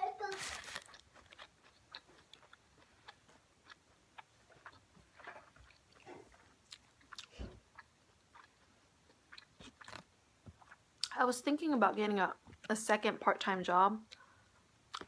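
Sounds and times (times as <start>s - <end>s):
person chewing food: 0.3s - 11.1s, 14.1s - 15.0s.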